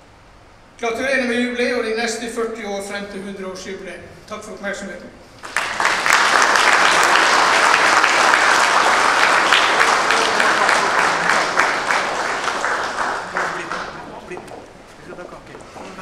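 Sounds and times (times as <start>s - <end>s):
audience applauding: 5.4s - 16.0s.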